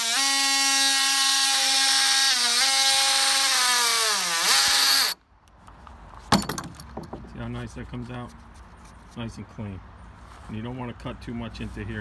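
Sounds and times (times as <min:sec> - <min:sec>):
multi-tool cutting wood: 0:00.0 - 0:05.2.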